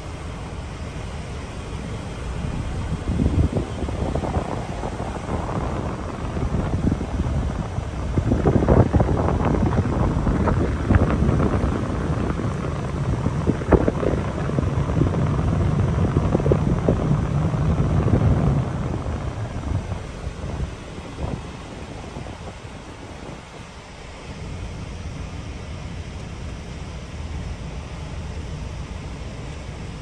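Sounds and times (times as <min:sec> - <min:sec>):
vehicle rumble: 0:00.0 - 0:30.0
wind buffeting microphone: 0:00.0 - 0:30.0.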